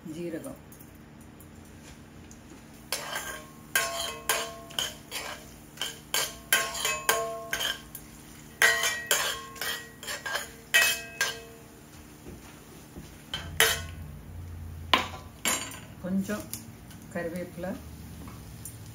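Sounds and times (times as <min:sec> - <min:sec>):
metal spoon clinking on pots: 0:02.9 - 0:08.0, 0:08.6 - 0:11.6, 0:13.3 - 0:14.0, 0:15.0 - 0:15.9.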